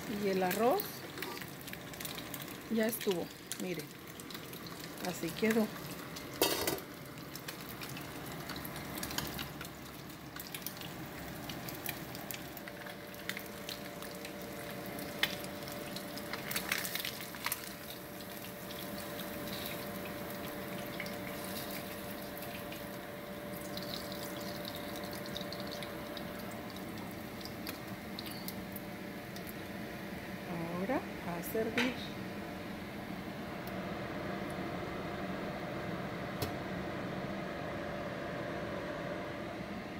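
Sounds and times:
fish sizzling in hot oil: 0:00.1 - 0:29.5.

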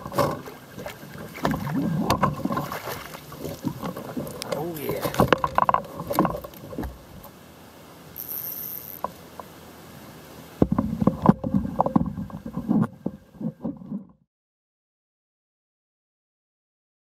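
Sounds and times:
fishing rod and reel clatter: 0:01.4 - 0:06.9, 0:08.2 - 0:09.2.

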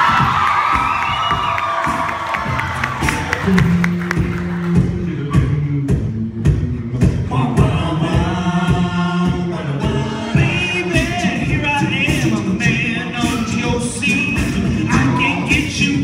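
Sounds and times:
vocal percussion beat: 0:00.0 - 0:16.0
male group singing a cappella: 0:07.0 - 0:16.0.

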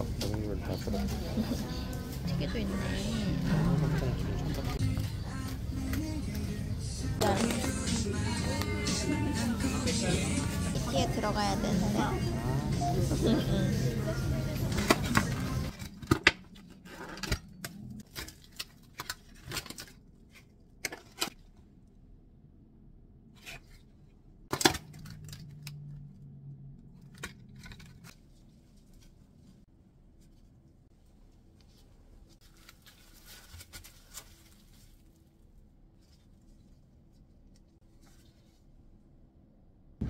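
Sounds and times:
plastic packaging crinkling: 0:32.4 - 0:35.6.

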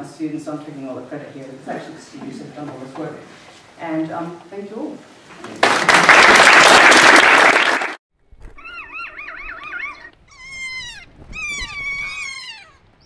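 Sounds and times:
audience applauding: 0:05.4 - 0:08.0
parrot warbling call: 0:08.6 - 0:12.9
parrot long screeches: 0:08.6 - 0:13.0.

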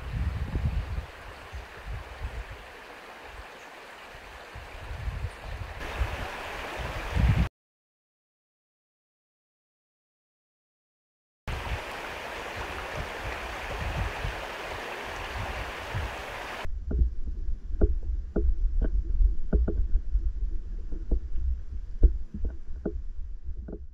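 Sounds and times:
shallow river water running: 0:00.0 - 0:07.5, 0:11.5 - 0:17.0
underwater current rumble: 0:11.5 - 0:23.9
sharp underwater clicks: 0:17.7 - 0:23.9.

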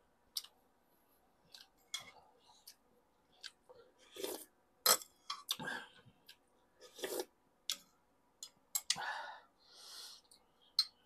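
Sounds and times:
slurping broth: 0:04.0 - 0:04.5, 0:06.8 - 0:07.3.

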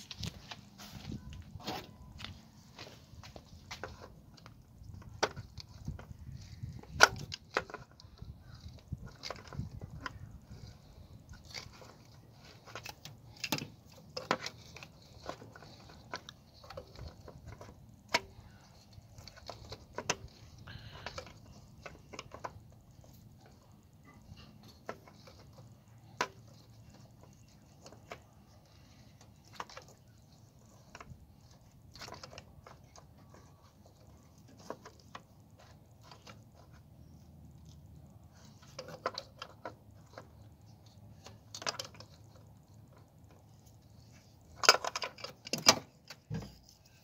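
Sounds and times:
pliers and engine parts clanking: 0:44.4 - 0:47.0.

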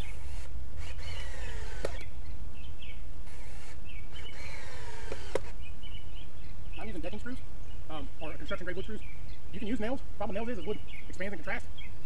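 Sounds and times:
power drill driving screws: 0:00.0 - 0:02.1, 0:03.3 - 0:05.6
sharp click: 0:01.8 - 0:02.1, 0:05.1 - 0:05.6.

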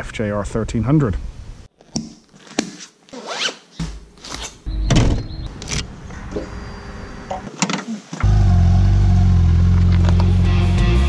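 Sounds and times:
zipper rasping: 0:02.4 - 0:04.6
loud low drone: 0:08.2 - 0:11.0.

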